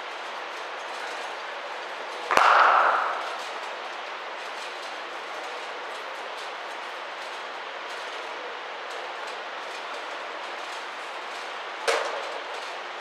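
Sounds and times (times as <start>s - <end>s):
indoor hall background noise: 0.0s - 13.0s
cricket bat striking ball: 2.3s - 3.6s.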